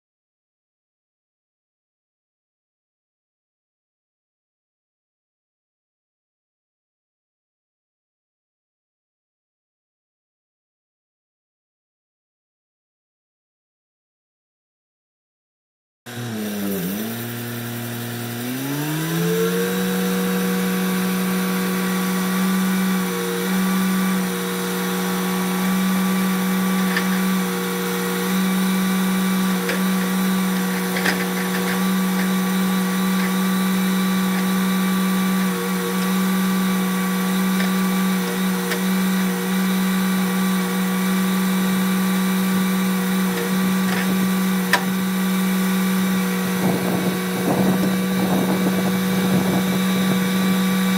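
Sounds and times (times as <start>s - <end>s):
sawmill engine running: 16.1s - 50.9s.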